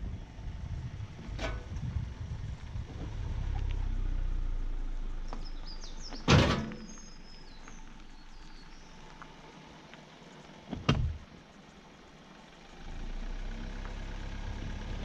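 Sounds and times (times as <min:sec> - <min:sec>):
car driving over gravel: 0:00.1 - 0:15.0
loud thump of car jolting: 0:06.2 - 0:06.9.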